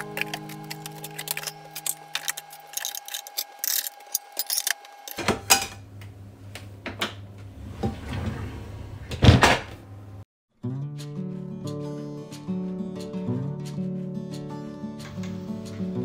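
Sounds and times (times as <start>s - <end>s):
baskets and utensils rattling: 0.0s - 5.2s
drawer sliding shut with thud: 7.7s - 9.8s.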